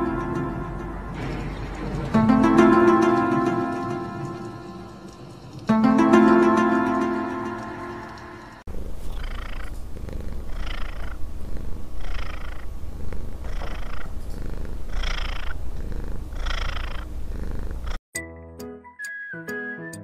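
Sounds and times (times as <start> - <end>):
music: 0.0 - 8.6, 18.1 - 20.0
cat purring: 8.6 - 18.0.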